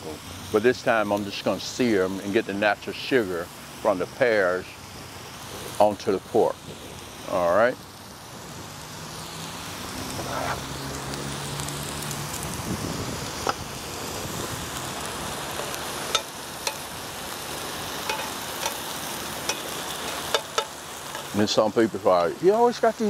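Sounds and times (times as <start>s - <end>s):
meat sizzling in a grill pan: 0.0s - 23.0s
tongs clicking against pan: 15.6s - 16.8s, 18.1s - 18.8s, 19.4s - 21.3s.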